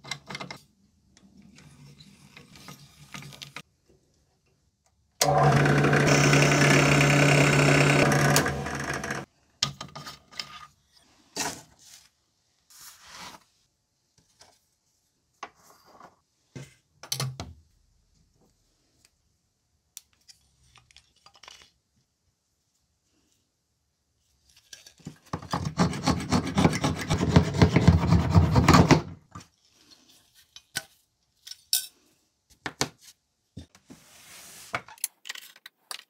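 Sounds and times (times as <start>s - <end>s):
drill press motor humming: 5.2s - 9.2s.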